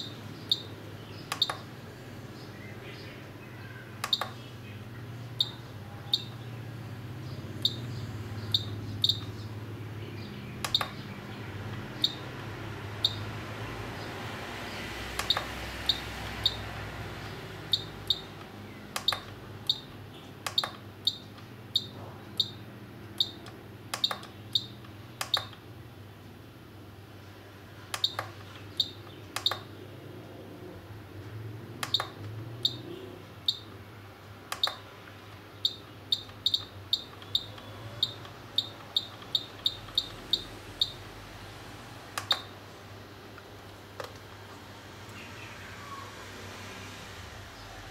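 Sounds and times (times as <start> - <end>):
sharp clicks: 1.3 - 1.7, 4.0 - 4.5, 7.6 - 9.5, 10.6 - 13.3, 15.1 - 16.7, 17.7 - 22.6, 23.2 - 25.7, 27.9 - 29.8, 31.8 - 32.8, 34.4 - 41.0, 42.1 - 42.6, 43.3 - 45.2.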